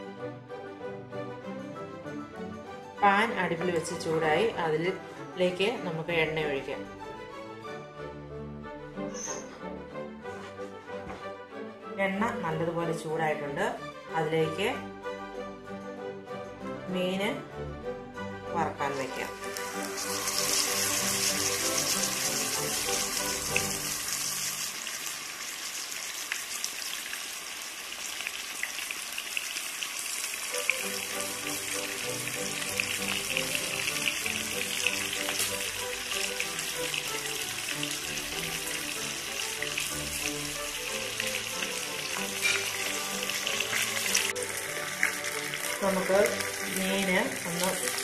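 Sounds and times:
background music: 0.0s - 24.8s, 30.3s - 48.0s
fish sizzling in oil: 19.0s - 48.0s.

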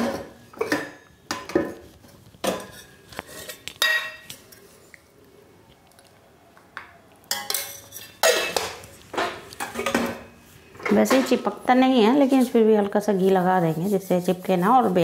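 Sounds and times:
metal spoon clinking on steel bowl: 7.3s - 8.8s.

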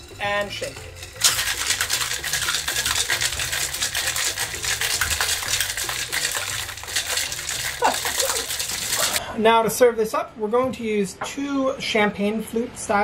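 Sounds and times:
ice rattling in cocktail shaker: 0.0s - 9.2s.

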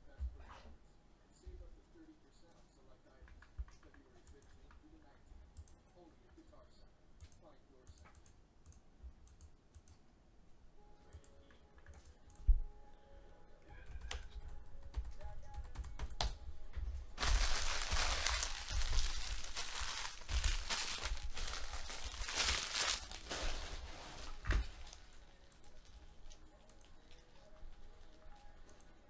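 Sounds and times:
foil wrappers crinkling: 17.2s - 28.2s.

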